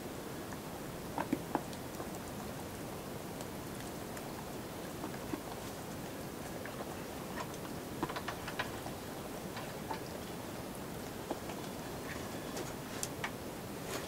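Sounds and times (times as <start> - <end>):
steady low hiss: 0.0 - 14.0.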